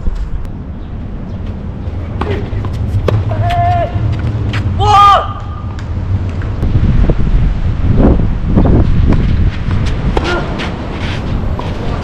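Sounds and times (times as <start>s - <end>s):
wind rumble on microphone: 0.0s - 4.8s, 5.4s - 12.0s
person shouting: 3.3s - 4.0s, 4.8s - 5.6s.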